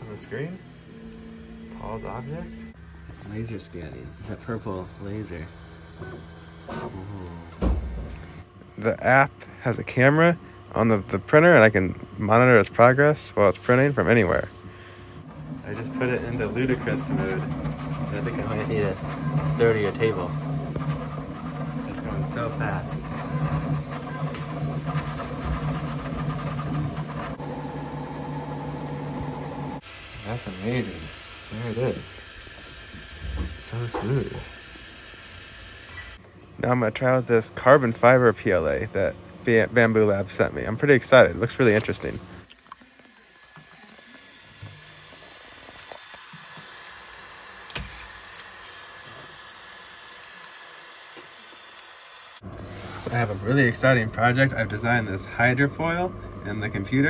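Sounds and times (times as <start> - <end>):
printer motors and fans whirring: 0.0 - 57.0
print head rapid moves: 15.3 - 29.8.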